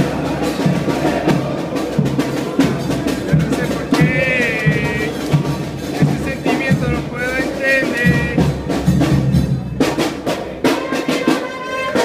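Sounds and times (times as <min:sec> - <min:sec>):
bass and snare drums: 0:00.0 - 0:12.0
brass melody: 0:03.3 - 0:08.7, 0:10.7 - 0:12.0.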